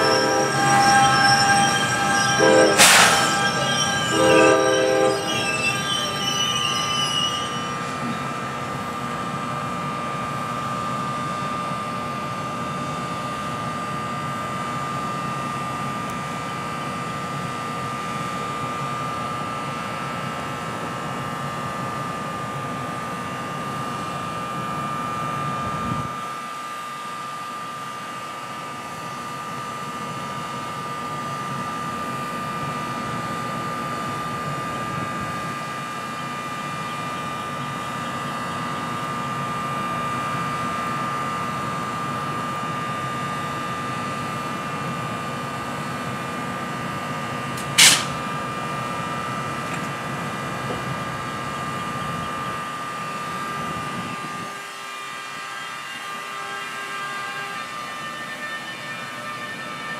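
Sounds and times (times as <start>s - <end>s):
high whine: 0.0s - 9.0s
locomotive hum: 0.0s - 27.2s.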